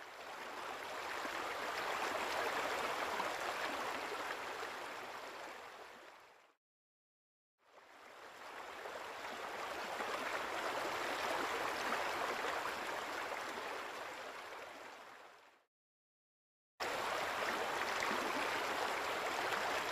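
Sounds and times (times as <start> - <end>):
flowing water rushing: 0.0 - 6.4, 7.8 - 15.2, 16.8 - 19.9.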